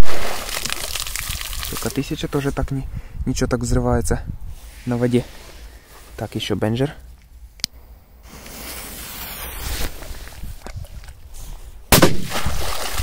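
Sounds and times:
firecracker bang in water: 0.0 - 1.1, 11.9 - 13.0
firecracker fuse hissing: 8.2 - 10.6.

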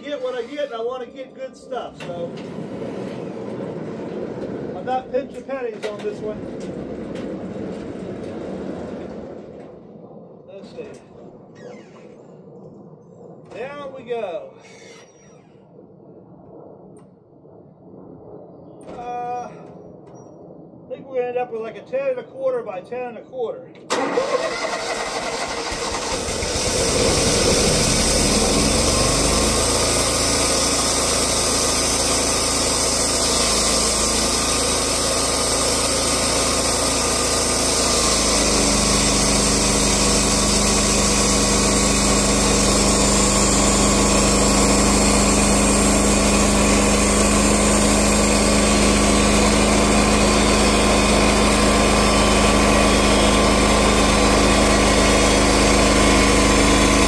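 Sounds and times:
sawmill engine running: 23.9 - 57.0
band saw cutting log: 24.0 - 57.0.

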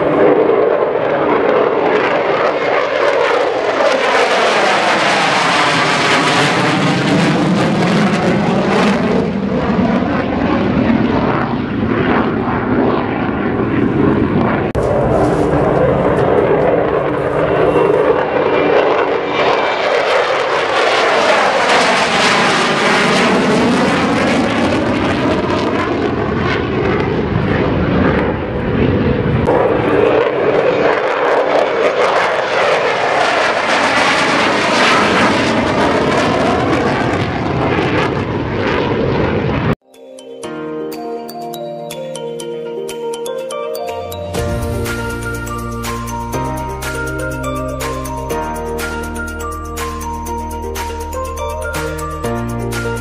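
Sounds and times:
jet engines roaring: 0.0 - 39.8.

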